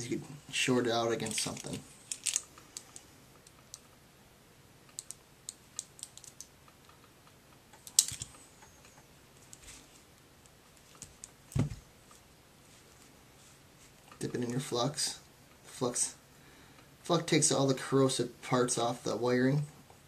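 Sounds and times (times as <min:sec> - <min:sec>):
light clicks and taps of handling: 0:04.9 - 0:09.8.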